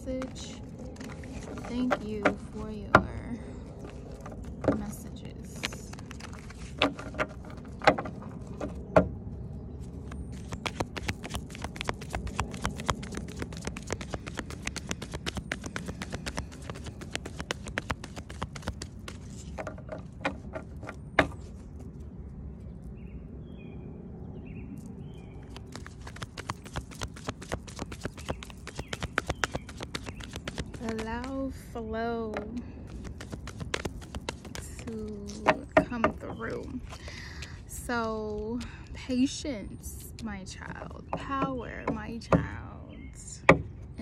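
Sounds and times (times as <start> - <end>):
cards being shuffled: 5.5 - 6.9, 10.0 - 19.7, 25.4 - 31.4, 32.8 - 35.7.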